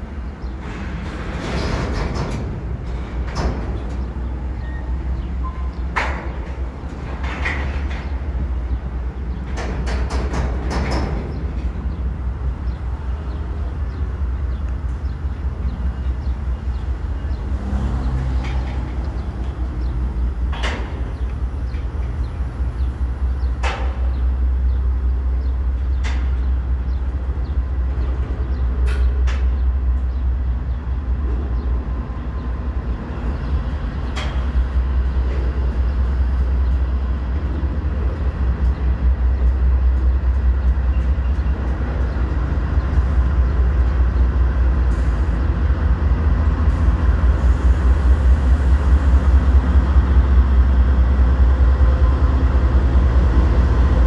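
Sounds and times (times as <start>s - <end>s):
freight train rolling rumble: 0.0s - 54.0s
metallic clanks and squeaks: 0.5s - 8.8s.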